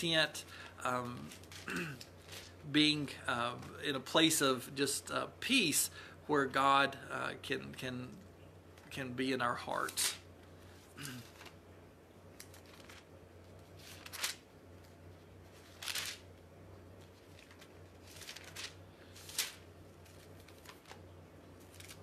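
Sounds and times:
book pages rustling: 12.3 - 16.3, 17.0 - 22.0.

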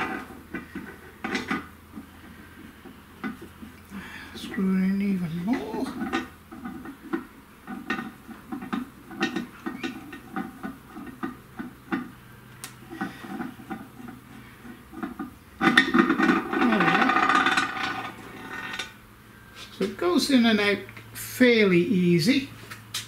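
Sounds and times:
metal rattling and scraping: 0.0 - 3.6, 5.2 - 12.2, 12.8 - 19.0.

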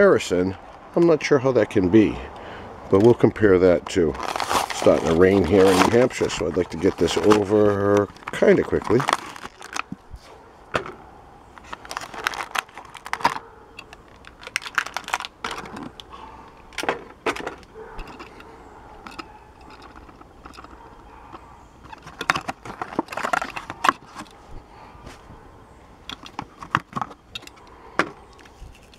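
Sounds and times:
plastic blister pack tearing: 3.8 - 10.0, 11.6 - 16.1, 21.9 - 24.2.

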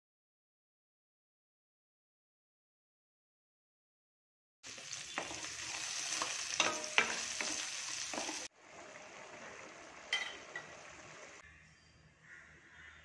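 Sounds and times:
oil sizzling in a pan: 4.6 - 11.4.

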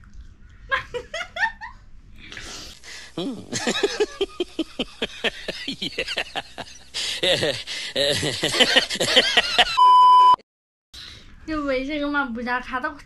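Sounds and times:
person laughing: 0.7 - 1.7, 2.8 - 9.8.

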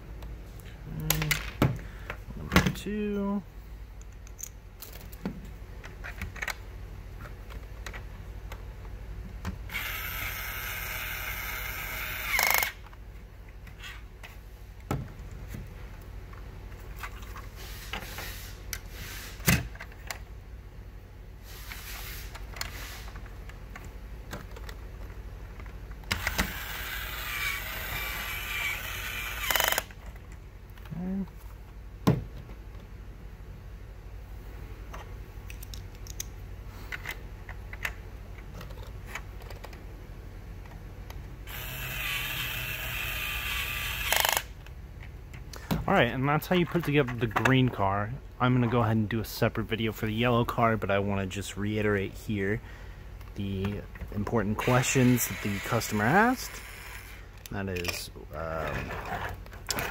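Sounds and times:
toy drill motor whirring: 9.7 - 12.8, 26.1 - 29.9, 41.4 - 44.5, 54.6 - 57.4
plastic parts clicking: 35.5 - 36.3.

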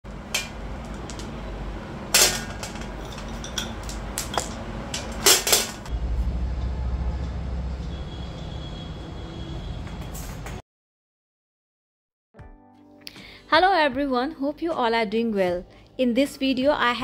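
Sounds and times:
hard objects clinking and knocking: 2.2 - 5.9.

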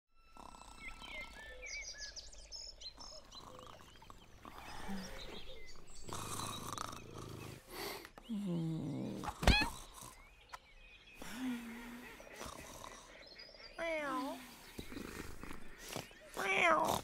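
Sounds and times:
long rough snore: 0.2 - 1.7, 3.0 - 10.4, 11.8 - 13.2, 14.2 - 17.0
birds chirping: 0.2 - 17.0.

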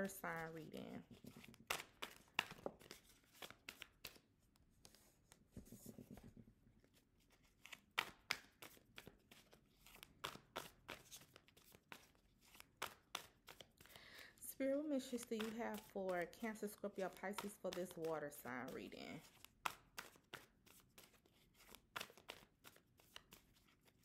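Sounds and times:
cards being shuffled: 0.2 - 24.0
cards tapped on tabletop: 1.1 - 4.2, 8.0 - 8.8, 17.0 - 18.1, 19.2 - 20.5.

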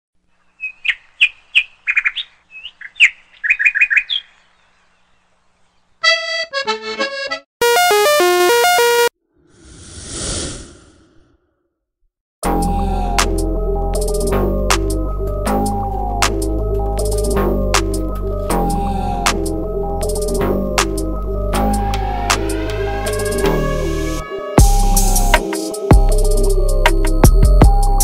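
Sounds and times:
bird chirping: 0.3 - 6.2
held musical chord: 6.0 - 9.1, 12.4 - 25.9.

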